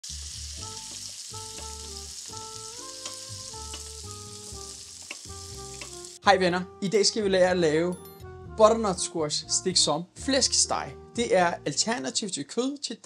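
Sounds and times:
food sizzling in a frying pan: 0.0 - 6.2
soft background music: 0.2 - 13.0.

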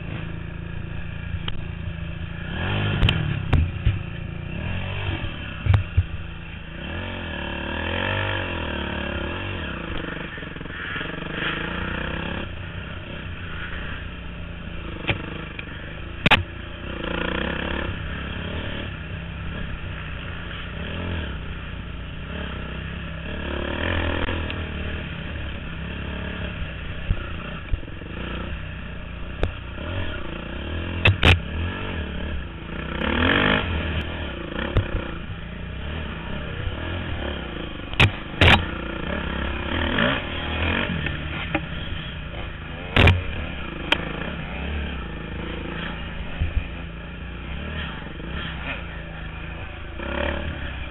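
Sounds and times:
dirt bike engine revving: 0.0 - 50.9
sharp knocks: 31.0 - 31.4.

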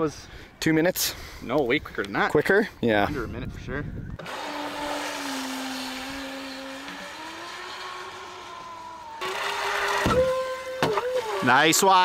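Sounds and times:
electric jet boat motor whining: 4.2 - 11.8.

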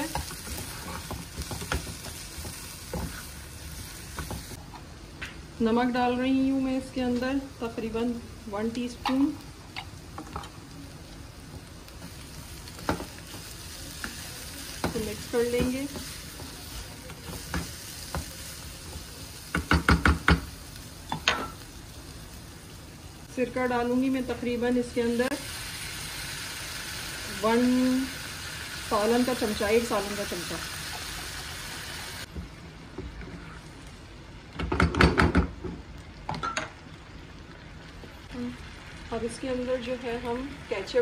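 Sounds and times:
food sizzling in oil: 0.0 - 32.4, 35.8 - 41.0
spatula knocking frying pan: 19.5 - 20.5
paste sizzling in oil: 24.1 - 32.3.

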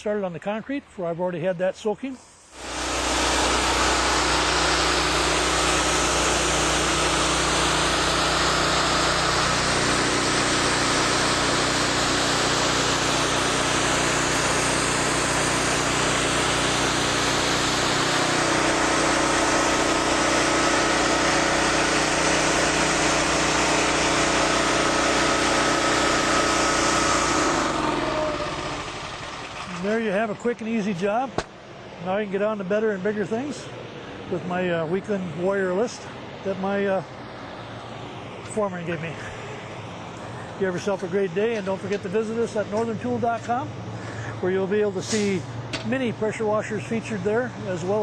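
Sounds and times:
pressure washer engine running: 2.2 - 48.0
water jet hissing on concrete: 2.4 - 29.9, 44.1 - 45.6.

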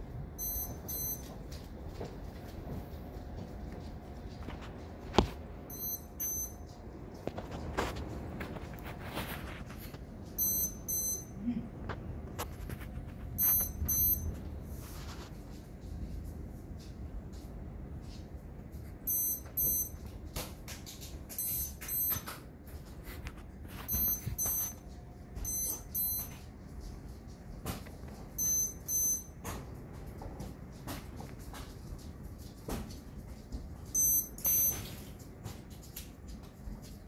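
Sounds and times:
lightning detector double beeps: 0.4 - 1.3, 5.7 - 6.6, 10.4 - 11.4, 13.4 - 14.3, 19.1 - 20.0, 21.3 - 22.3, 23.9 - 24.8, 25.5 - 26.4, 28.4 - 29.3, 34.0 - 34.9.

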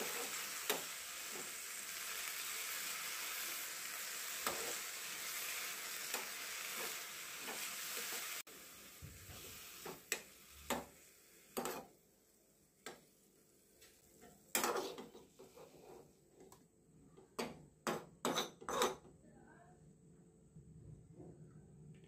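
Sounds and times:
spoon scraping a pan: 0.0 - 1.6, 4.3 - 8.4, 11.5 - 11.9, 14.2 - 16.2, 17.4 - 19.0
leaves sizzling in oil: 0.0 - 15.9.

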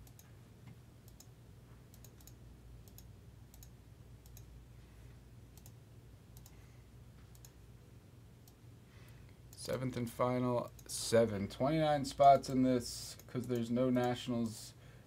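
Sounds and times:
computer mouse clicks: 0.0 - 1.3, 1.9 - 4.5, 5.6 - 5.8, 6.4 - 6.6, 7.2 - 7.6
low steady hum: 0.0 - 15.0.

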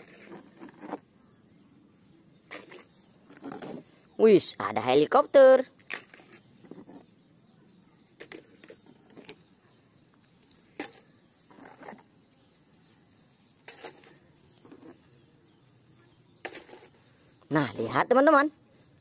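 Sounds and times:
plastic toy vehicles clicking and knocking: 5.8 - 6.8, 8.1 - 9.4, 16.4 - 17.0.

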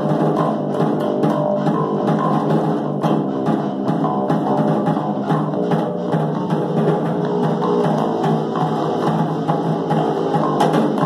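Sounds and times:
drums keeping a beat: 0.0 - 11.0
electric bass guitar: 4.0 - 11.0.

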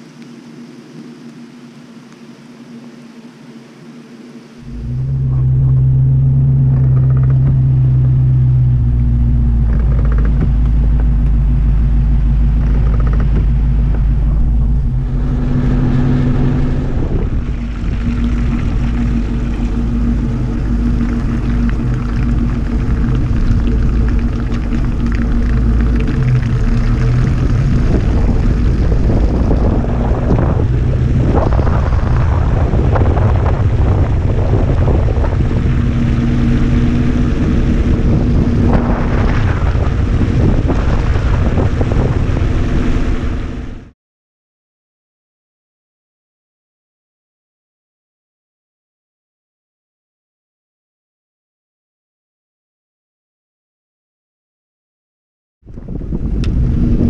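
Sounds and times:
car engine humming: 0.0 - 43.9
rough rushing noise: 4.6 - 43.9.

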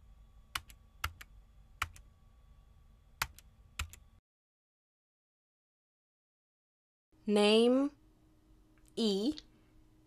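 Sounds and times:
faint hum: 0.0 - 4.2, 7.2 - 10.0
keyboard key presses: 3.2 - 4.0.

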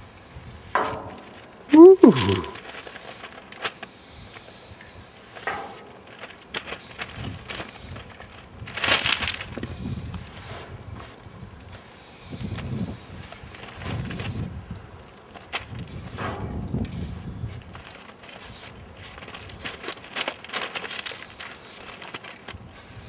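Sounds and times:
aerosol spray can hissing: 6.8 - 8.0, 9.7 - 14.5, 15.9 - 17.6, 18.4 - 19.8, 21.0 - 21.8, 22.8 - 23.0.

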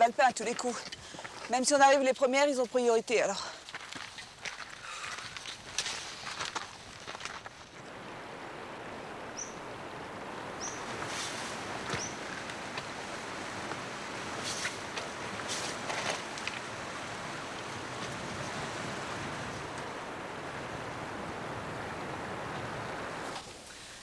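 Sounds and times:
wind-like rushing noise: 7.9 - 23.4.

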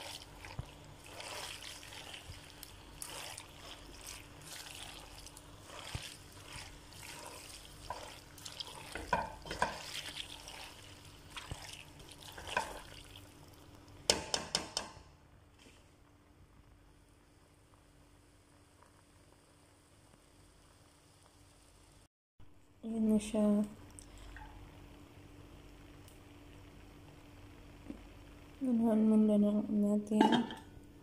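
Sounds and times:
spatula squelching and scraping: 0.0 - 13.2.

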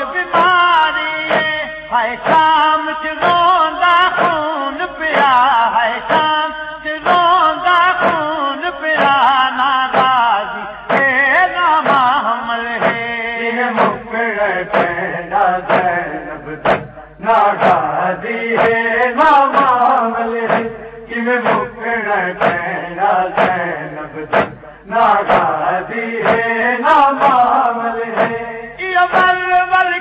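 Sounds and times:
voices chanting a lament: 0.0 - 30.0
hands striking chest: 16.6 - 17.0, 24.3 - 24.6.

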